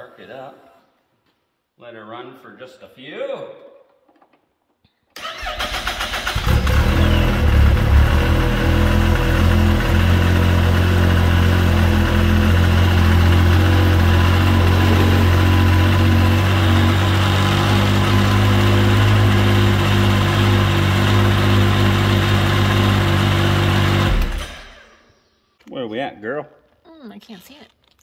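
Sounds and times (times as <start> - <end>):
snowmobile engine idling: 6.6 - 22.2.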